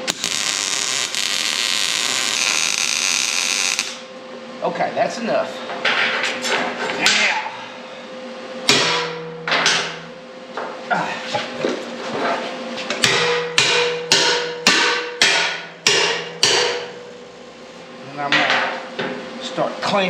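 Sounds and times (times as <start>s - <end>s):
hammer striking steel plate: 8.7s - 10.0s, 13.0s - 17.0s.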